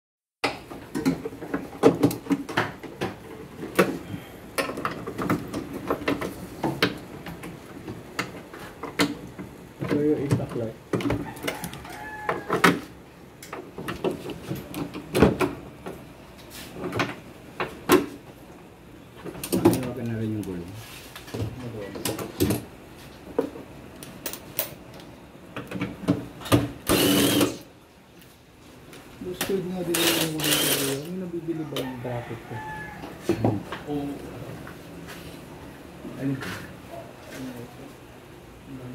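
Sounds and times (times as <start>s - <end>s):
cordless impact driver burst: 26.8s - 27.6s, 30.0s - 31.1s.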